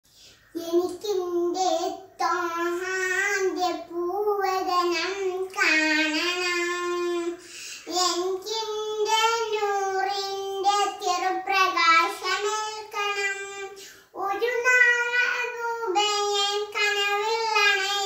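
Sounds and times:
girl singing unaccompanied: 0.2s - 18.0s.

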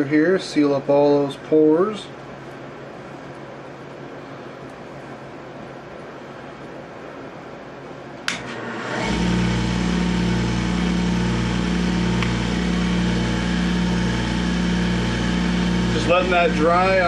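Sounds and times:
lathe switch click: 8.2s - 8.6s
lathe motor humming: 8.3s - 17.0s.

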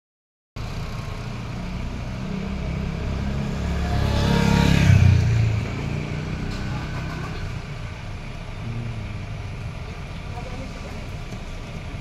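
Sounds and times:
motor scooter passing: 2.2s - 7.5s
vehicle engine idling: 6.5s - 12.0s.

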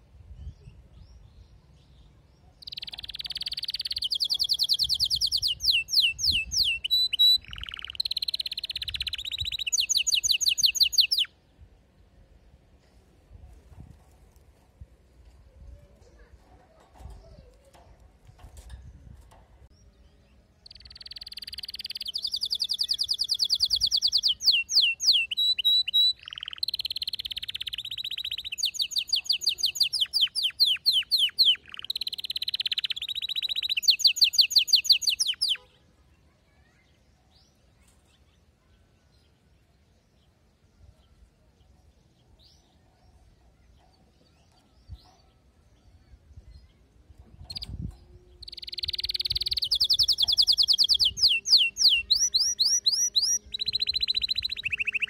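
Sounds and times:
canary singing rapid trills: 2.5s - 11.4s, 20.6s - 35.8s, 47.4s - 55.0s.

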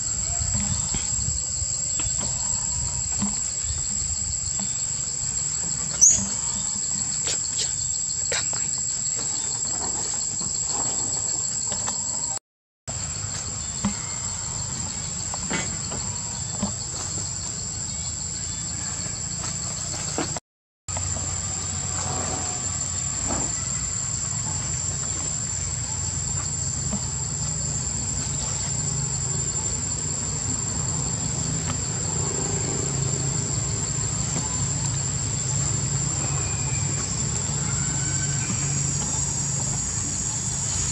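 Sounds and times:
high-pitched insect chorus: 0.0s - 40.9s.

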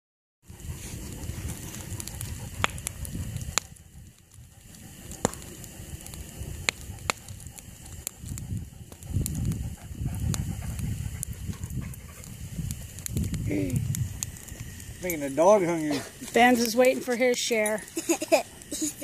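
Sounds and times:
campfire crackling: 0.4s - 19.0s
low rumble: 0.5s - 15.2s
fire popping sharply: 0.5s - 19.0s.

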